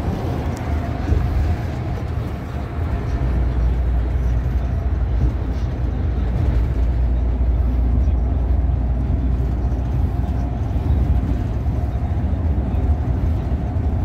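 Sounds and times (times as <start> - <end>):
coach engine rumble: 0.0 - 14.0.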